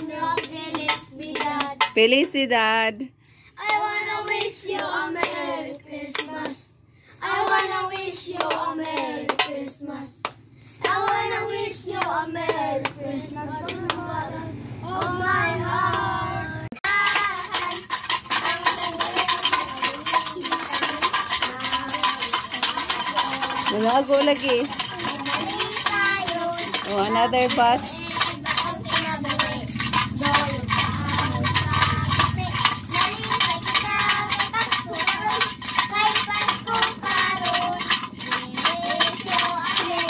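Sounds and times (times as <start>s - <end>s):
children singing: 0.0s - 1.6s, 10.9s - 40.0s
metal shaker rattling: 0.0s - 3.0s, 3.8s - 9.9s, 16.8s - 40.0s.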